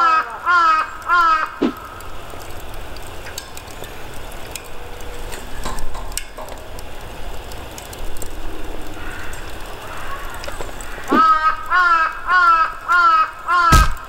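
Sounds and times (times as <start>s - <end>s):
gas torch burner roaring: 0.0s - 14.0s
sharp clicks: 12.8s - 14.0s.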